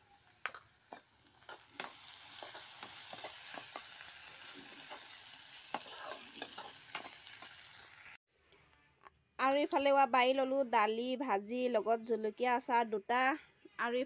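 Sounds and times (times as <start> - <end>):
vegetables sizzling in oil: 0.0 - 8.2
steel spoon scraping pan: 1.4 - 7.6.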